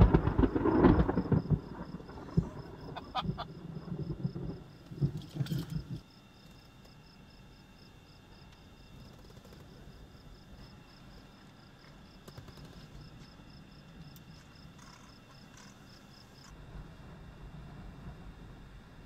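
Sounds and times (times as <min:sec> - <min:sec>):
insect chirping: 0:00.0 - 0:19.0.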